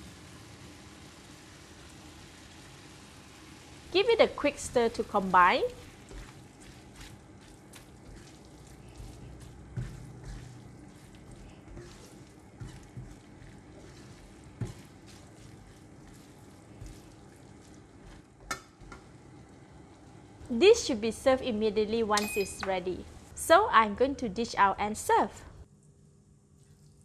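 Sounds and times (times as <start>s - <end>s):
faint sizzle: 0.0s - 27.0s
spatula scraping a wok: 5.7s - 19.0s.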